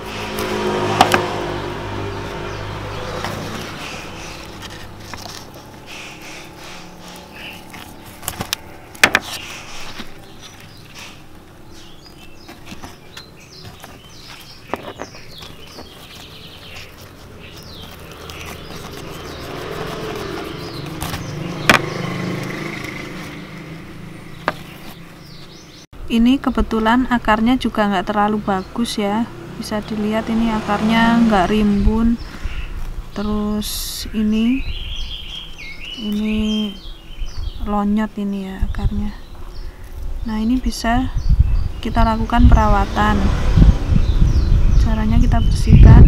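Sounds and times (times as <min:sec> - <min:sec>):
motor vehicle passing: 0:00.0 - 0:25.9, 0:27.3 - 0:37.6, 0:41.1 - 0:45.9
stems knocking a tray: 0:00.8 - 0:01.4, 0:07.8 - 0:09.4, 0:21.0 - 0:23.2, 0:24.4 - 0:24.9.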